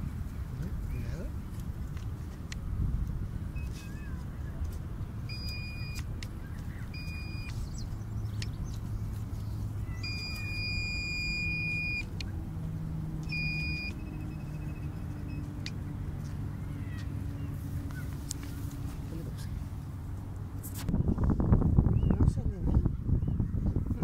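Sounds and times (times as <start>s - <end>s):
metal detector beeping: 3.6s - 4.1s, 5.3s - 6.1s, 6.9s - 7.6s, 9.9s - 12.3s, 13.2s - 15.7s.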